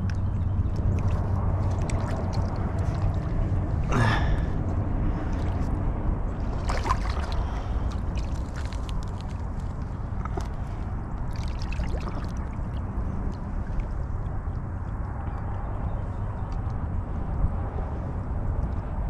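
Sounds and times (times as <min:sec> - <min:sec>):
water sloshing and splashing: 0:00.0 - 0:14.6
steady low rumble: 0:00.0 - 0:19.0
short breathy gasp: 0:03.9 - 0:04.6.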